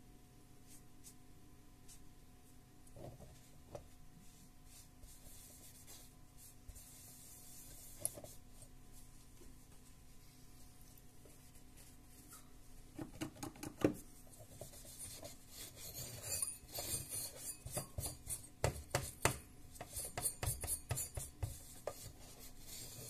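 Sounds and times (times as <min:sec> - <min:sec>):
hand scraping metal heatsink: 0:14.9 - 0:19.3.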